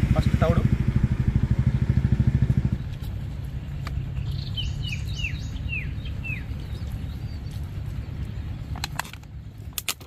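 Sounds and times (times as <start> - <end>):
engine running with low throb: 0.0 - 9.8
bird chirping: 2.4 - 8.8.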